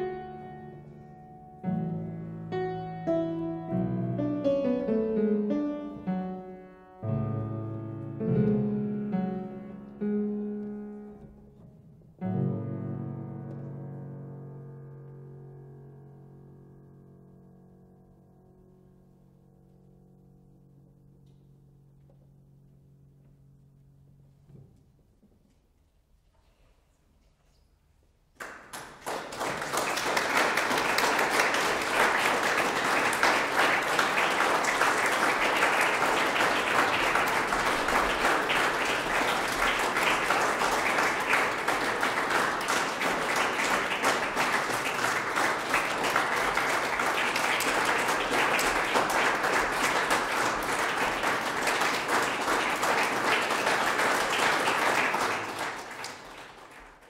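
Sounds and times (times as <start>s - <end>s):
audience applause: 28.4s - 57.0s.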